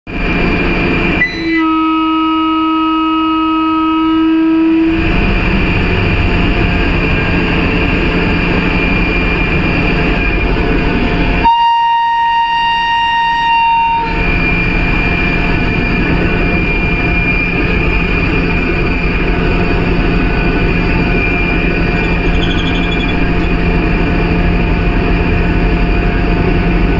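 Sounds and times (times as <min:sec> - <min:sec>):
locomotive cab running noise: 0:00.1 - 0:26.9
train horn blasts: 0:01.0 - 0:05.2, 0:11.4 - 0:15.5.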